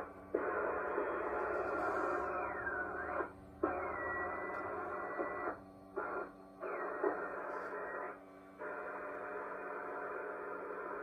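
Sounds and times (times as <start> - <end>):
radio broadcast with thin sound: 0.0 - 11.0
radio tuning whistles gliding: 0.4 - 8.2.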